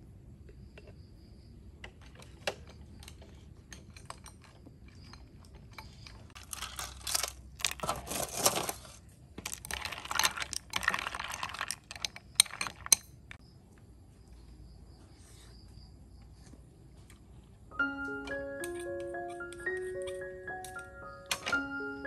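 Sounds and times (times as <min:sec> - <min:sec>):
metal spoon clinking ice in bowl: 0:09.6 - 0:13.2.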